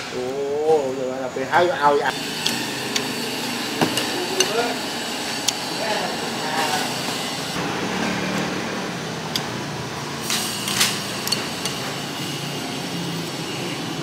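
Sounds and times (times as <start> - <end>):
street food stall din: 0.0 - 14.0
utensils clinking on dishes: 2.1 - 7.4, 10.3 - 14.0.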